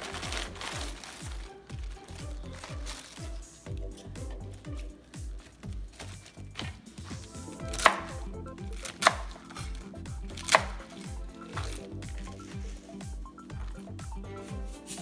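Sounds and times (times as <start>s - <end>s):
cleaver chopping on a cutting board: 7.7s - 8.1s, 8.8s - 9.6s, 10.4s - 10.8s.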